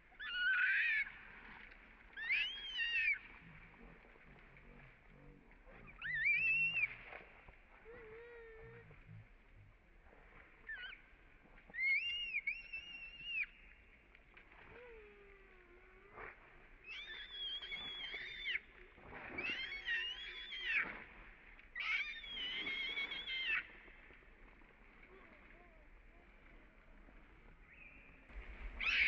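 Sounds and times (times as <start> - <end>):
infant monkey screaming: 0.2 - 1.1, 2.2 - 3.2, 5.9 - 6.9, 11.8 - 13.4, 16.9 - 18.6, 19.4 - 20.8, 21.8 - 23.7, 28.8 - 29.0
monkey squeak: 21.8 - 23.6.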